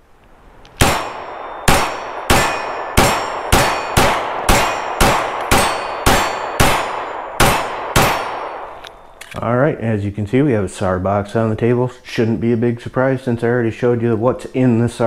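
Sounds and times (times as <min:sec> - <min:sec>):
pistol shots: 0:00.8 - 0:09.2.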